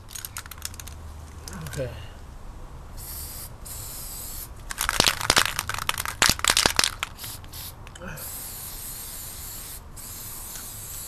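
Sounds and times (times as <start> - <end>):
aerosol spray can spraying: 3.0 - 4.5, 6.3 - 11.0.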